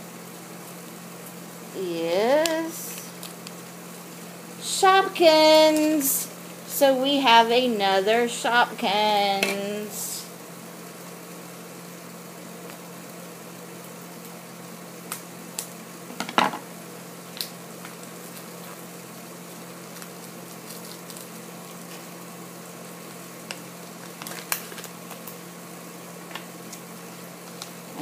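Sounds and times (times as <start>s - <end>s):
low hum and hiss: 0.0s - 28.0s
foil packet crinkling: 2.8s - 4.3s, 17.3s - 22.4s, 23.0s - 25.5s
scissors snipping foil: 19.9s - 22.1s, 23.4s - 25.4s.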